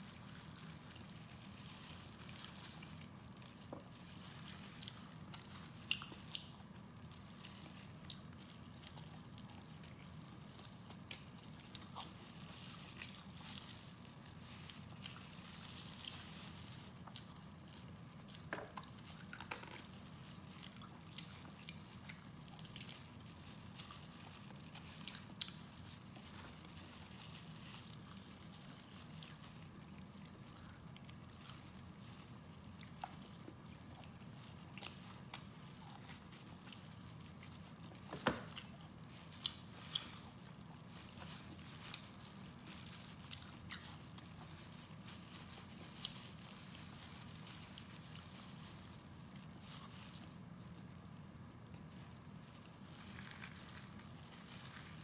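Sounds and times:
low steady hum: 0:00.0 - 0:55.0
sticky squishes of meat: 0:00.0 - 0:55.0
wet chewing and lip smacks: 0:04.8 - 0:13.3, 0:20.6 - 0:23.2.

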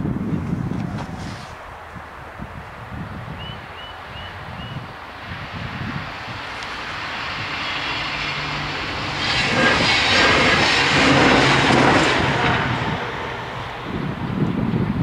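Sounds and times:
vehicle passing: 0:05.7 - 0:14.4.

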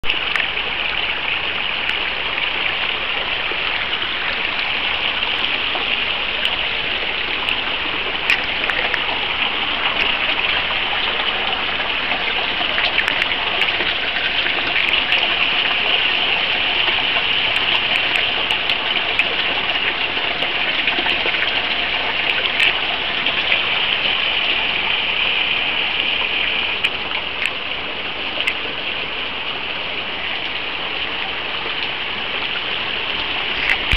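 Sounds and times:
stream rushing over stones: 0:00.0 - 0:33.9
faint clicks: 0:08.2 - 0:09.2, 0:12.7 - 0:13.4, 0:26.8 - 0:27.6.

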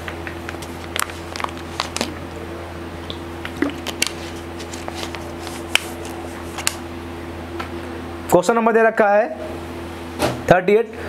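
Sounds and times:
steady low hum: 0:00.0 - 0:11.0
handling noises: 0:03.4 - 0:06.8.

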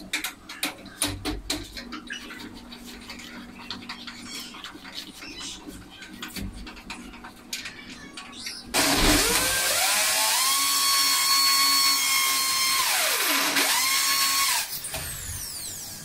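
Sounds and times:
electric drill whining: 0:08.8 - 0:16.0.

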